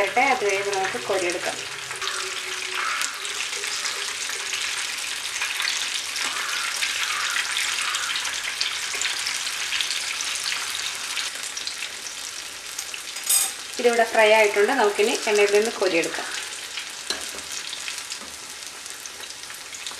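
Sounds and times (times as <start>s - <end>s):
oil sizzling and crackling: 0.0s - 19.9s.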